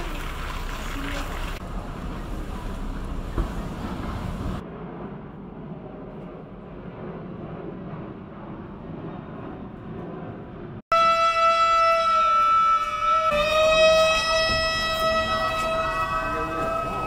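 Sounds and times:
low outdoor background rumble: 0.0s - 10.8s.

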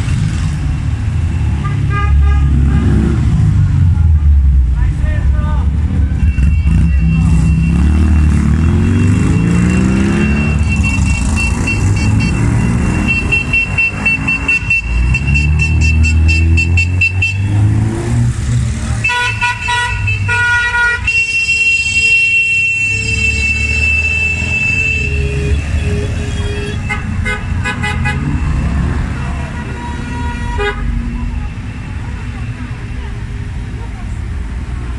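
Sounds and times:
car horns honking: 1.4s - 3.4s, 6.0s - 18.1s, 19.0s - 32.7s.

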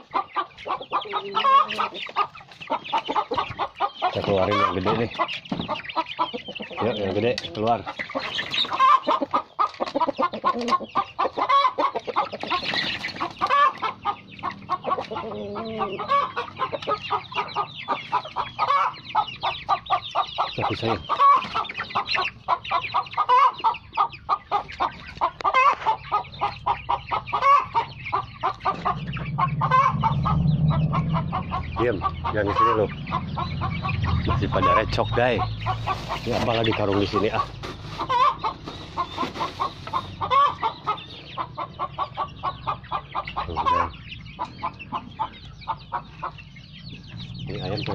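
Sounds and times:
chickens clucking: 0.0s - 47.9s
low hum: 28.0s - 35.7s.

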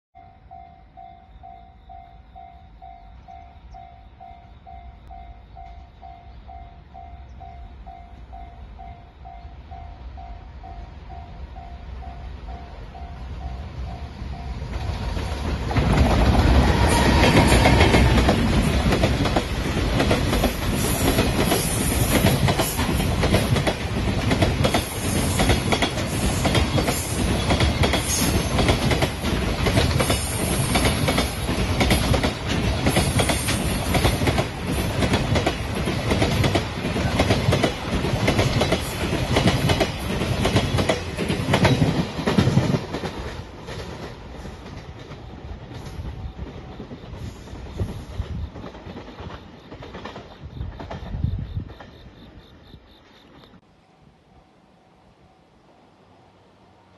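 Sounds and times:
train wheels clattering over rail joints: 14.7s - 52.0s.

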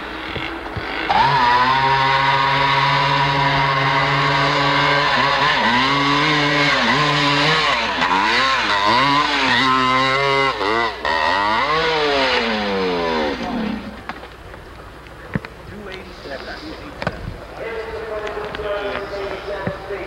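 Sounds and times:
dirt bike engine revving: 0.0s - 14.6s.

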